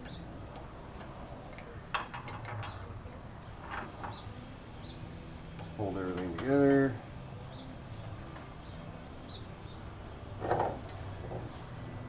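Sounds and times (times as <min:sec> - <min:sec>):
metallic clinks and taps: 0:00.0 - 0:02.9.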